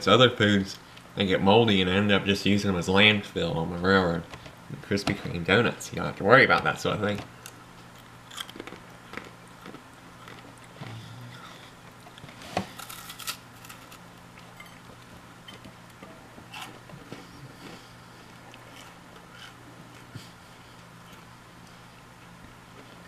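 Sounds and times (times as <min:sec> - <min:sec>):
low steady hum: 0:00.0 - 0:23.0
doughnut being chewed: 0:07.4 - 0:23.0.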